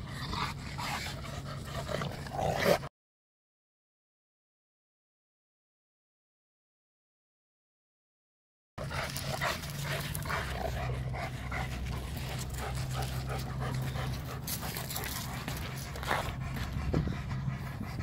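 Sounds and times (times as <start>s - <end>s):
dog panting: 8.8s - 18.0s.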